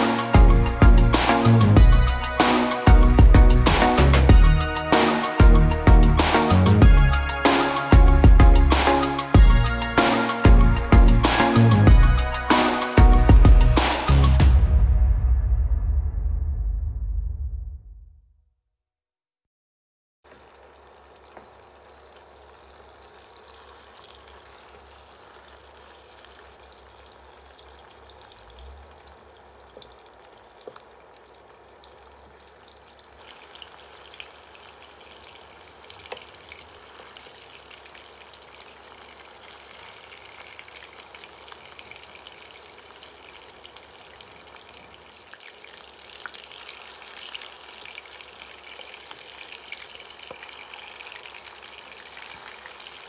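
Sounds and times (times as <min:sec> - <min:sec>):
meatballs sizzling in oil: 0:20.3 - 0:53.0
oil popping and crackling: 0:20.3 - 0:53.0.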